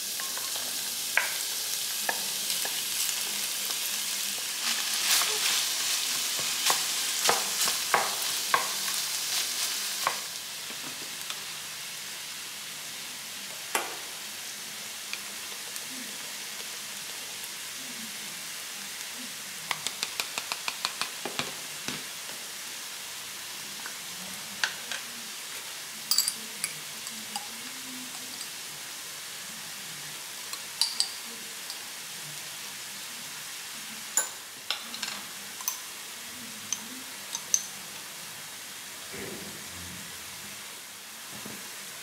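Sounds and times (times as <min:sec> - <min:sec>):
metal spoon clinking on glass: 0:26.1 - 0:26.8, 0:30.8 - 0:31.8.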